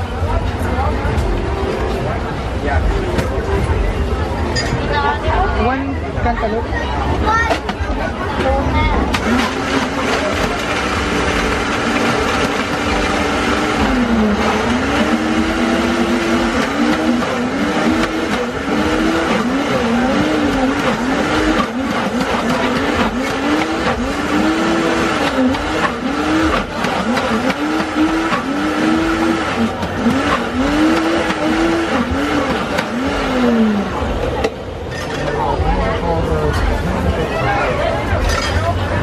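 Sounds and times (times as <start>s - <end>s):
blender crushing ice: 9.1s - 33.0s.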